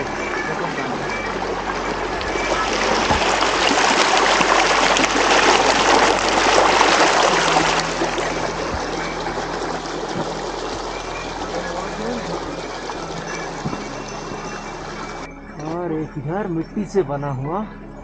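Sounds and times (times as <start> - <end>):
stream rushing over stones: 0.0 - 15.3.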